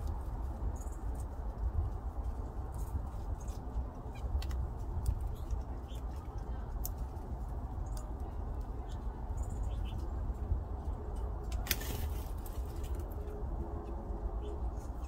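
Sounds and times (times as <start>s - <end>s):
steady low rumble: 0.0s - 15.0s
bird clicks and chirps: 3.4s - 7.1s, 7.7s - 8.2s
bird wings fluttering: 11.6s - 13.1s.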